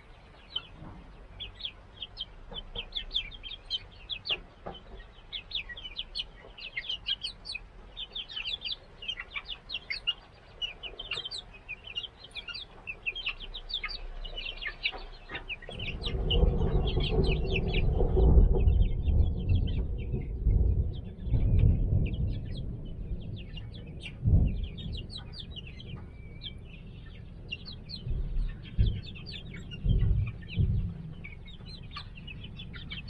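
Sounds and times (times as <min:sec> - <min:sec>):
chicks peeping: 0:00.0 - 0:33.0
loud low rumble: 0:13.4 - 0:33.0.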